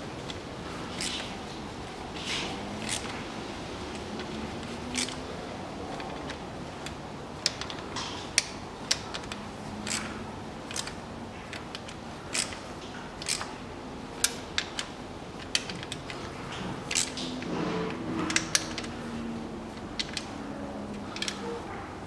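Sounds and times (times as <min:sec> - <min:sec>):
socket tool clicking on bolts: 0:00.9 - 0:01.3, 0:02.8 - 0:03.2, 0:03.9 - 0:05.2, 0:05.9 - 0:13.5, 0:14.2 - 0:17.5, 0:18.2 - 0:19.0, 0:19.7 - 0:21.5.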